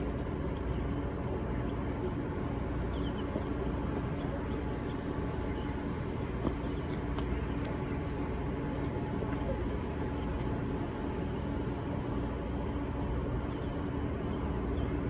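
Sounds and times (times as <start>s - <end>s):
faint steady hum: 0.0s - 15.0s
low outdoor rumble: 0.0s - 15.0s.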